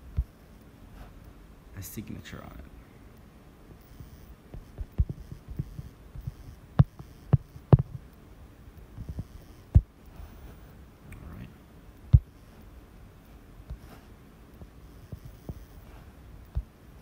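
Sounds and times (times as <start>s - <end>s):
stylus tapping on tablet screen: 3.9s - 8.1s, 12.1s - 12.4s.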